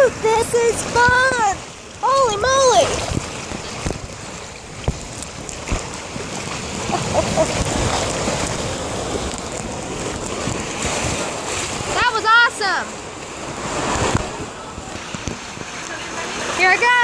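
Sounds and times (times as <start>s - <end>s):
water rushing down a slide: 0.0s - 17.0s
wind on microphone: 0.0s - 17.0s.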